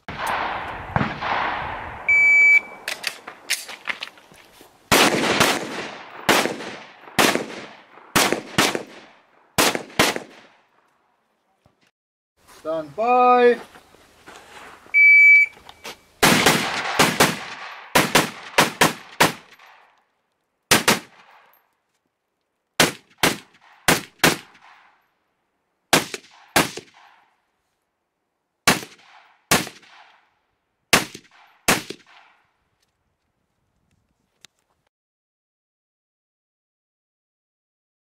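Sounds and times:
rifle shots: 0.1 - 3.3, 4.9 - 10.6, 16.2 - 19.7, 20.7 - 21.4, 22.8 - 24.9, 25.9 - 27.2, 28.7 - 30.2, 30.9 - 32.4
shot timer beep: 2.1 - 2.9, 15.0 - 15.8.

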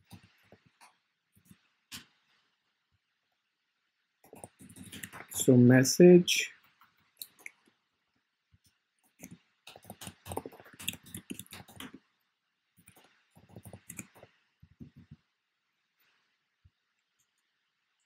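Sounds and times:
computer keyboard typing: 4.2 - 5.4, 9.1 - 12.0, 12.8 - 15.0.

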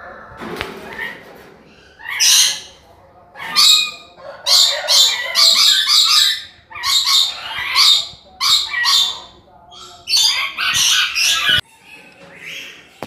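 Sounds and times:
lorikeets screeching: 1.8 - 2.8, 3.4 - 11.6.

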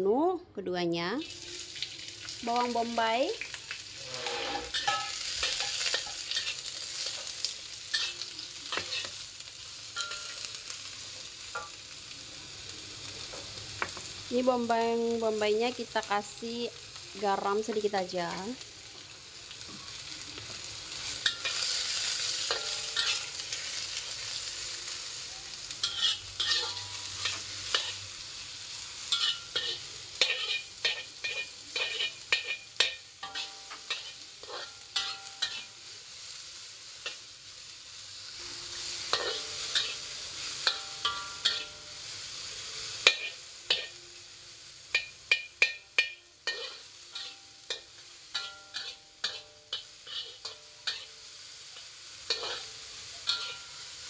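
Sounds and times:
onions sizzling in oil: 1.1 - 54.0
metal spatula scraping a pan: 3.4 - 9.2, 20.9 - 24.5, 25.8 - 28.2, 29.0 - 35.8, 38.4 - 44.0, 44.9 - 51.3, 52.3 - 54.0.

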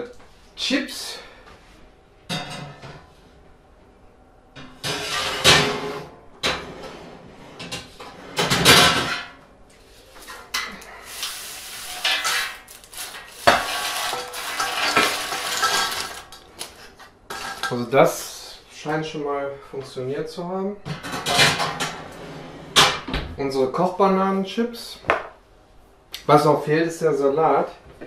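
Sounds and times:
chips scraped off metal tray: 11.1 - 17.8.

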